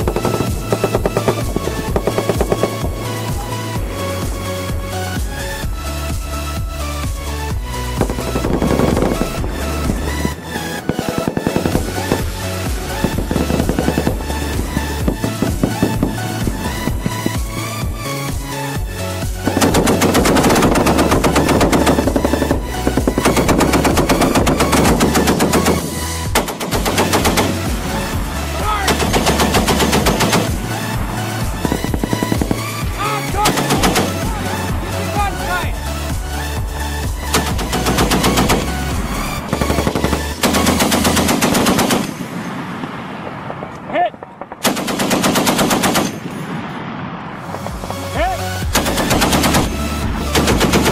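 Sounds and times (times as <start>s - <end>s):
heavy machine gun automatic fire: 8.0s - 10.0s, 10.9s - 12.4s, 13.0s - 16.0s, 19.4s - 27.7s, 28.9s - 30.6s, 33.5s - 34.3s, 37.3s - 38.8s, 39.5s - 42.2s, 44.4s - 46.4s, 48.7s - 50.9s.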